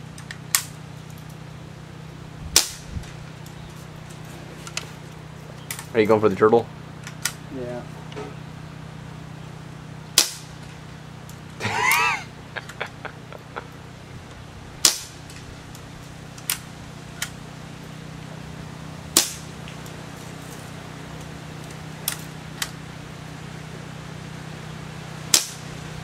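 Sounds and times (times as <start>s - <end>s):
steady low hum: 0.0s - 26.0s
air pistol firing pops: 2.6s - 2.9s, 10.2s - 10.5s, 14.8s - 15.2s, 19.2s - 19.5s, 25.3s - 25.7s.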